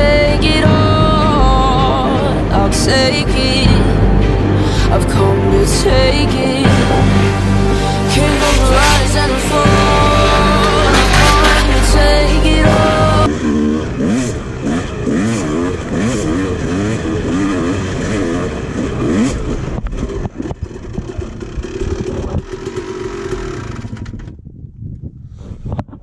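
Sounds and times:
background music: 0.0 - 14.2
dirt bike engine revving: 6.6 - 24.3.

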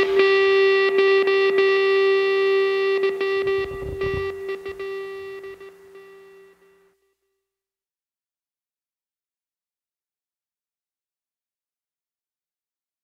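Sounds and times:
background music held note: 0.0 - 7.0.

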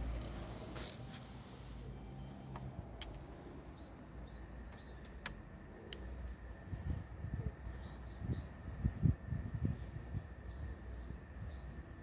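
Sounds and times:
distant birds chirping: 0.0 - 12.0
wind on microphone: 6.6 - 11.8.

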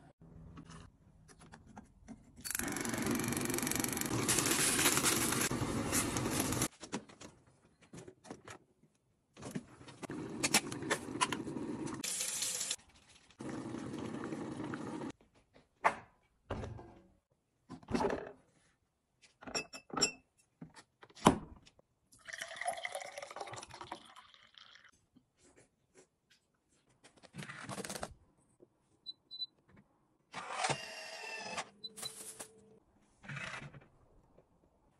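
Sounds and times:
juice poured into a glass: 22.2 - 24.9.

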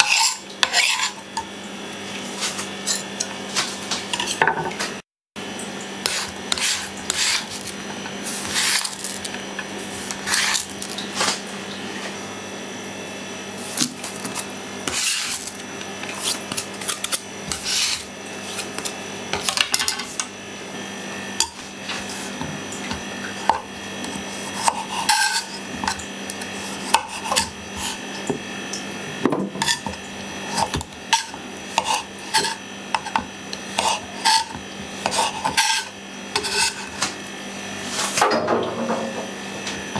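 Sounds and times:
knife slicing radishes: 6.0 - 9.3, 10.0 - 11.4, 23.4 - 28.0, 29.6 - 33.2, 33.8 - 37.1.

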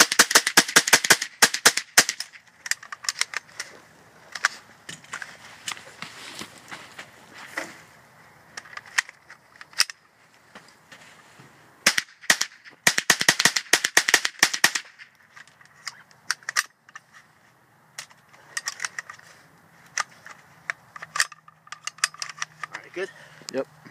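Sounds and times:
rifle shots: 0.0 - 2.4, 11.8 - 15.0.

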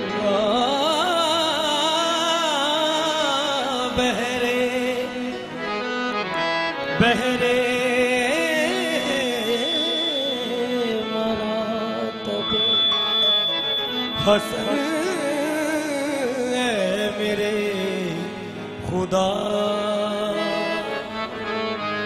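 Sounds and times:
wavering sustained vocal lines: 7.8 - 21.2
steady drone: 8.0 - 18.8.

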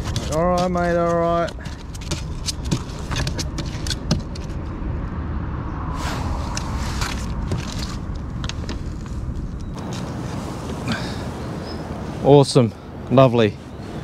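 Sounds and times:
low rumble: 4.3 - 9.8.

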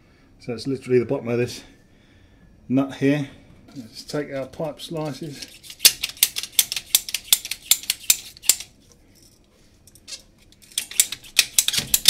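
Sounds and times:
pipe cutter clicking: 5.4 - 8.7, 10.6 - 12.0.

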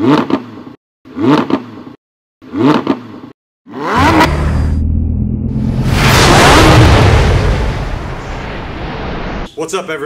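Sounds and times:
car engine revving: 3.7 - 7.2
rising whoosh: 4.2 - 9.5.

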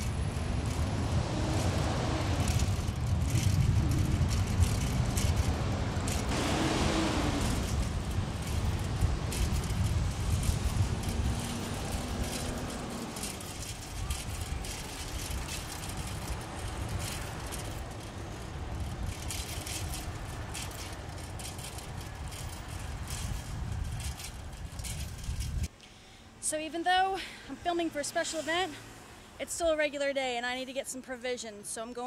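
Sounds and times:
rattling clicks: 0.0 - 6.4, 7.3 - 25.8
low engine hum: 0.0 - 25.7
wind rumble on microphone: 0.0 - 25.7
street traffic noise: 0.0 - 32.0.

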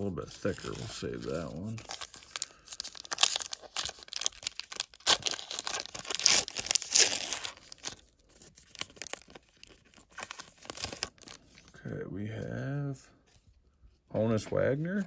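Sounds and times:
foil wrapper crinkling: 0.2 - 11.7.

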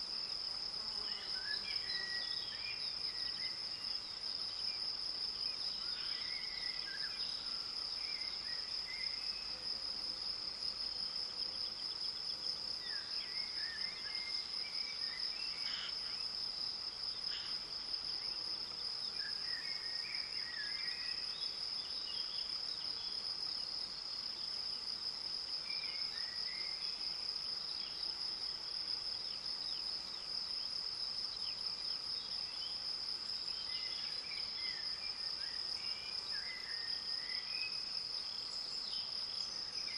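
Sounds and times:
insects buzzing: 0.0 - 39.9
bird song: 1.0 - 9.6, 25.6 - 28.1, 29.2 - 39.9.

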